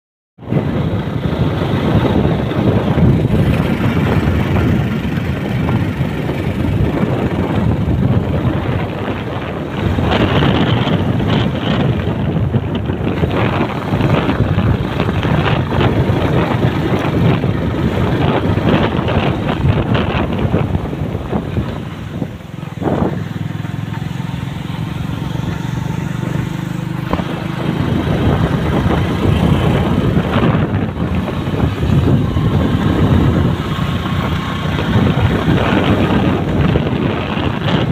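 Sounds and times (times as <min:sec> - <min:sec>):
motorbike engine: 0:00.4 - 0:37.9
road noise: 0:00.4 - 0:37.9
wind buffeting microphone: 0:00.4 - 0:37.9.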